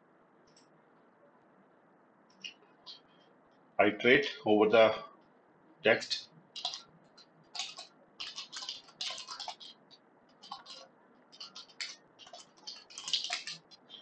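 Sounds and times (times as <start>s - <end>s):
typing on a computer keyboard: 6.6s - 14.0s.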